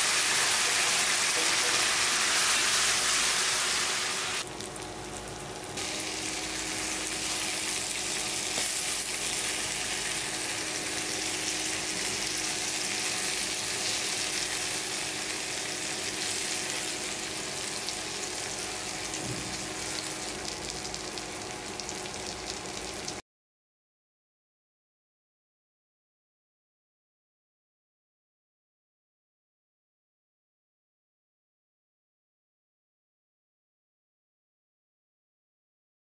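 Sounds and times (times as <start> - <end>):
food frying in hot oil: 0.0 - 23.2.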